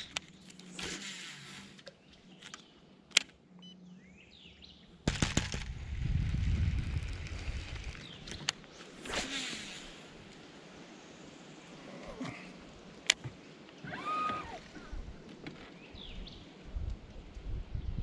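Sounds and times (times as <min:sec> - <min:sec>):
reel low rumbling rattle: 0:05.1 - 0:08.6.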